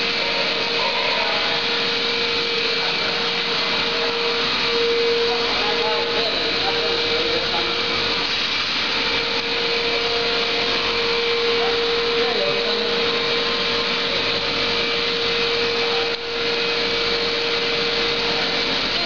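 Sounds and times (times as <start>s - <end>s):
machinery whirring hiss: 0.0s - 19.0s
steady machine hum: 0.0s - 19.0s.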